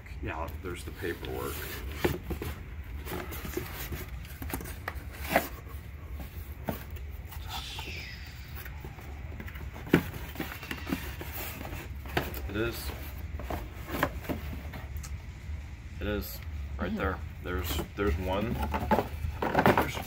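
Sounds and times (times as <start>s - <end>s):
cardboard and paper rustling: 0.5s - 7.5s, 8.6s - 15.0s, 17.5s - 20.0s.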